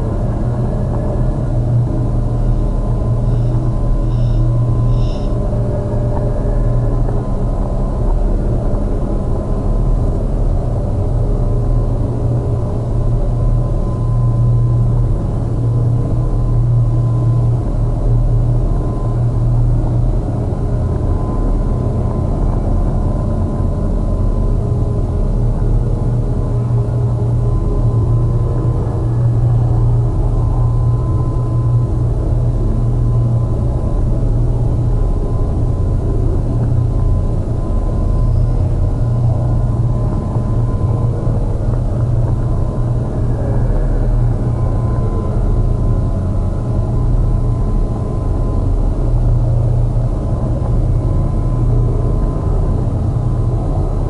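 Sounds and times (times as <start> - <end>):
heavy low electronic drone: 0.0 - 54.0
thin steady high tone: 3.2 - 6.9.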